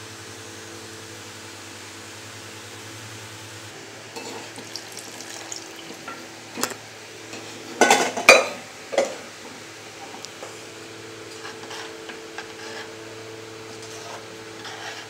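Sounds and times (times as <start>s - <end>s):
hot ghee sizzling: 4.0s - 8.1s
spoon clinking and scraping pans: 4.2s - 9.2s.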